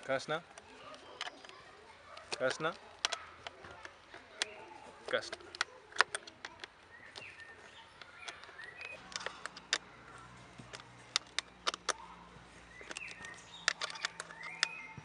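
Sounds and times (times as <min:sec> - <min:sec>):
hand tool clicking on plastic: 0:02.2 - 0:09.9, 0:10.6 - 0:12.0, 0:12.7 - 0:15.0.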